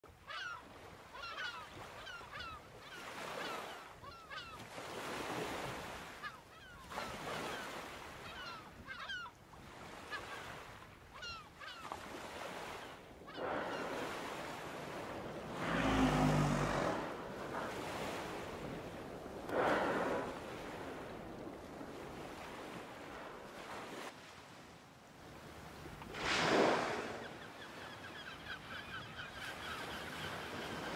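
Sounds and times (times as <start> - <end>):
seabirds chirping: 10.0 - 24.0, 25.7 - 30.9
sea water washing: 12.1 - 24.2, 25.3 - 28.3
whale blows: 13.2 - 23.2, 26.0 - 27.8.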